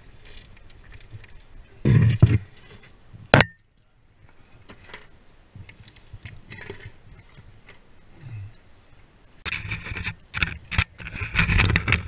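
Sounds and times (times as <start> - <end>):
harness gear clicks and scrapes: 9.5 - 12.0.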